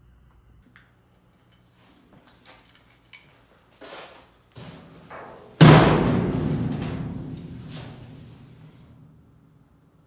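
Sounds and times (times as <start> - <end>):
footstep thud on metal floor: 4.6 - 8.6
metal panels ringing: 4.7 - 9.2
knocks on sheet metal: 5.1 - 8.4.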